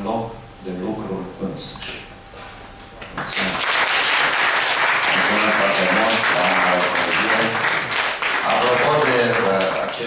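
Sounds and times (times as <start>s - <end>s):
audience applauding: 3.2s - 10.0s
voices under applause: 3.2s - 10.0s.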